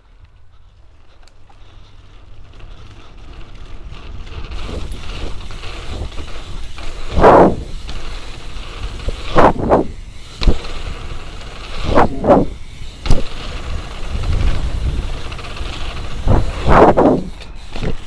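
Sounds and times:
bike tyres rumbling over dirt: 0:00.0 - 0:18.0
sharp clacks from bike: 0:00.0 - 0:18.0
wind rushing over microphone: 0:04.4 - 0:07.9, 0:08.9 - 0:11.0, 0:11.7 - 0:18.0.

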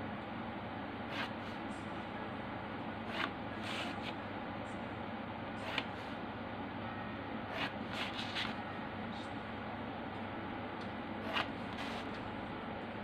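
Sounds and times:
pencil scratching on paper: 0:01.1 - 0:01.5.

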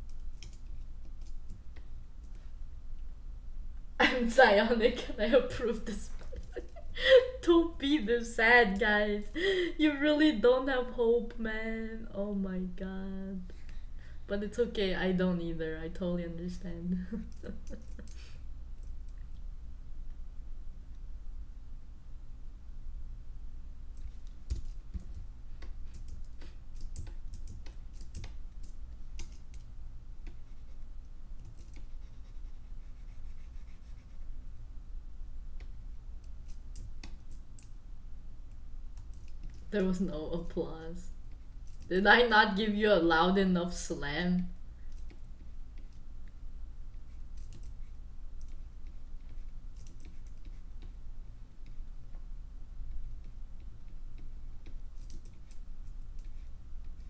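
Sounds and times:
low steady hum: 0:00.0 - 0:57.0
computer keys clicking: 0:00.1 - 0:02.4, 0:24.0 - 0:30.4, 0:31.4 - 0:32.0, 0:35.6 - 0:37.7, 0:38.5 - 0:39.8, 0:41.6 - 0:41.9, 0:44.9 - 0:46.0, 0:47.3 - 0:47.8, 0:48.4 - 0:51.0, 0:53.2 - 0:56.5.

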